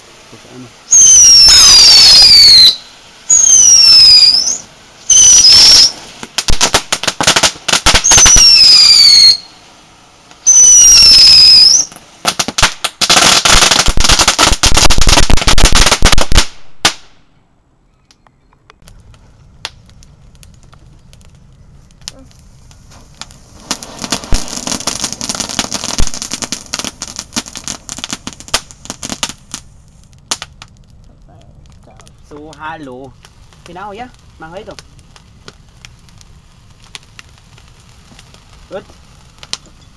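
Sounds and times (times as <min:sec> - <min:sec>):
firework crackling: 0:00.0 - 0:17.3, 0:18.8 - 0:39.9
whistling firework spinners: 0:00.9 - 0:06.2, 0:07.8 - 0:09.6, 0:10.4 - 0:12.0.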